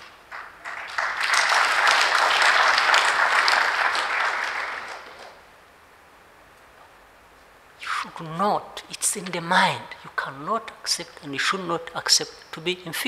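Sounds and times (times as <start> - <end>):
audience applauding: 0.0 - 5.5.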